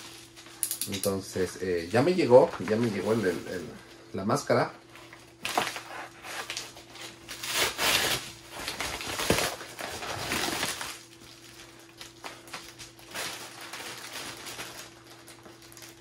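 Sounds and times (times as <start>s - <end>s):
plastic bag rustling: 0.0s - 16.0s
paper mailer being torn open: 5.4s - 11.1s.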